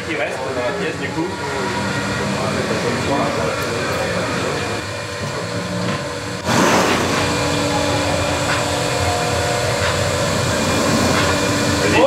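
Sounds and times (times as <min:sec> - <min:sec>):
machine motor humming: 0:00.0 - 0:12.0
held tones: 0:07.2 - 0:11.8.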